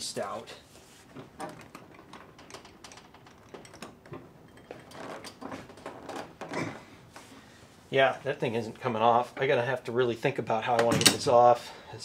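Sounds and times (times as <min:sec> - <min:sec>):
hand tools and wood clicking: 0:01.1 - 0:07.3.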